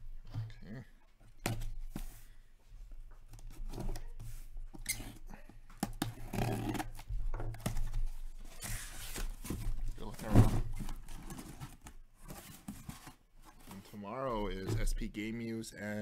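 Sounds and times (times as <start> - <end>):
cardboard rustling: 5.8 - 15.0.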